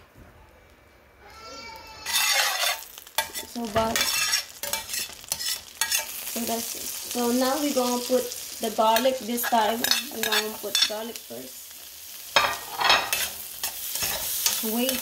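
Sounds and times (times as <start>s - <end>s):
butter sizzling in a pan: 1.6s - 15.0s
utensil scraping a pan: 2.0s - 6.2s.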